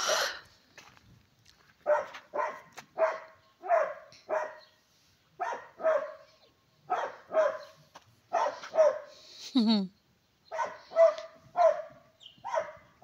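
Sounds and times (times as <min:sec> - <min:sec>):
dog barking: 0:01.8 - 0:04.7, 0:05.4 - 0:09.2, 0:10.5 - 0:13.0.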